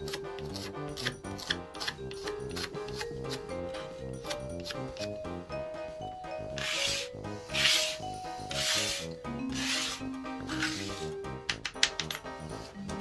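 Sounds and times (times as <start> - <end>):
background music: 0.0 - 13.0
hand brushing debris on wood: 6.6 - 11.2.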